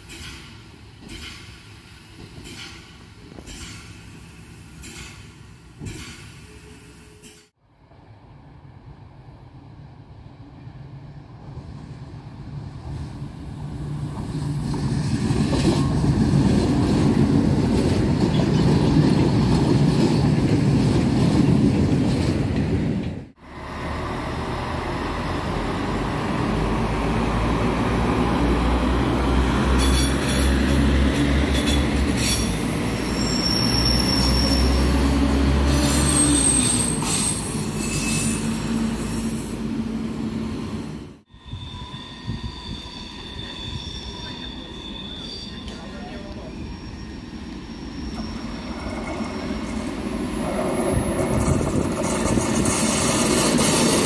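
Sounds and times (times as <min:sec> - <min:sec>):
diesel train engine: 0:10.8 - 0:54.0
high-pitched wheel squeal: 0:31.5 - 0:39.6, 0:41.3 - 0:51.8.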